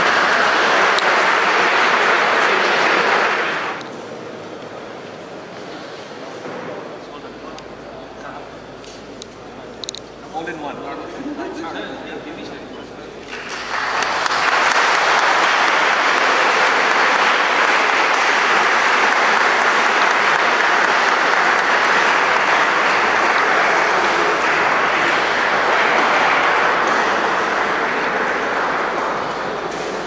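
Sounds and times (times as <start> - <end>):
audience applauding: 0.0 - 3.8, 13.2 - 30.0.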